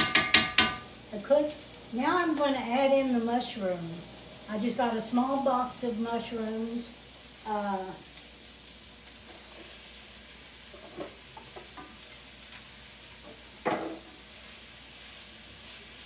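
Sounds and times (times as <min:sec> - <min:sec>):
light knocks on a pan: 0:00.0 - 0:00.8, 0:13.6 - 0:14.0
mushrooms sizzling in a skillet: 0:00.0 - 0:16.0.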